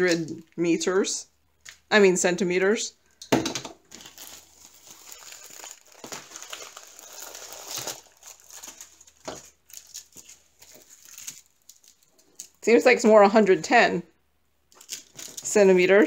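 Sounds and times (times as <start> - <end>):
plastic crinkling and rustling: 3.8 - 12.6, 14.7 - 16.0.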